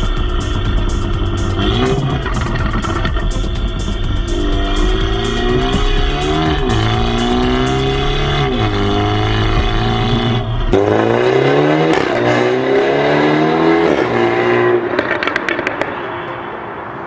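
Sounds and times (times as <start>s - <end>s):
car engine accelerating: 0.0s - 16.0s
exhaust crackles and pops: 1.6s - 3.7s.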